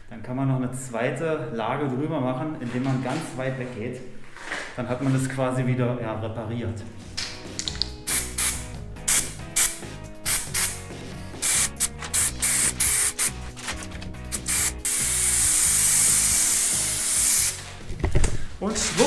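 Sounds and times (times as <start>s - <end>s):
background music: 5.1s - 19.0s
aerosol spray hissing: 8.1s - 13.4s, 14.3s - 17.7s.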